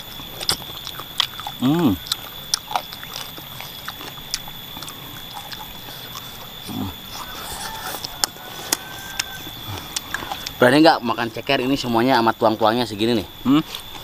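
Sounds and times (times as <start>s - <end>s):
person chewing: 0.0s - 10.6s, 13.4s - 14.0s.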